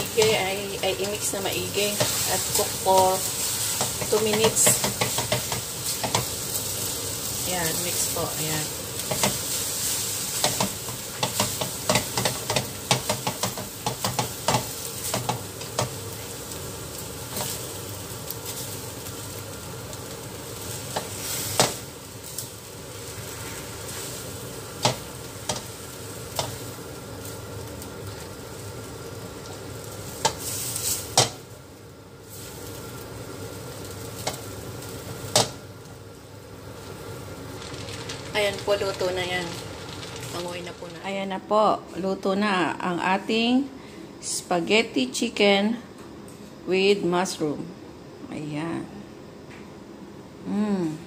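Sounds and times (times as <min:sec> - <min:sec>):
food sizzling in a wok: 0:00.0 - 0:45.4
spatula scraping and tapping pan: 0:01.0 - 0:06.4, 0:09.0 - 0:16.0, 0:24.8 - 0:26.6, 0:30.2 - 0:31.4, 0:35.3 - 0:35.6.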